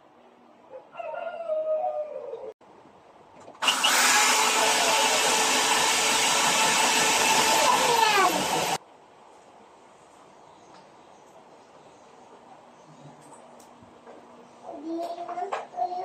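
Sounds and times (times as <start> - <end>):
electric drill boring into wall: 3.6 - 8.8.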